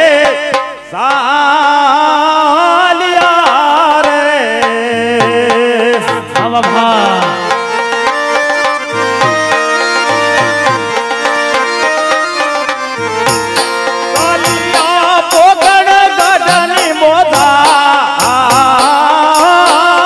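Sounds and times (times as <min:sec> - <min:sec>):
person singing: 0:00.0 - 0:08.2, 0:08.8 - 0:20.0
tabla strokes: 0:03.1 - 0:20.0
held melody notes: 0:06.6 - 0:20.0.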